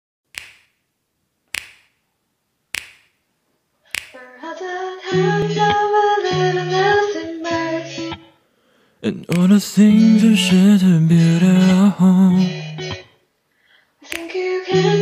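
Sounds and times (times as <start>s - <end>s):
finger snaps: 0.3s - 0.8s, 1.5s - 2.0s, 2.7s - 3.2s, 3.9s - 4.3s, 9.2s - 9.6s, 14.0s - 14.4s
young woman singing: 4.1s - 8.2s, 14.0s - 15.0s.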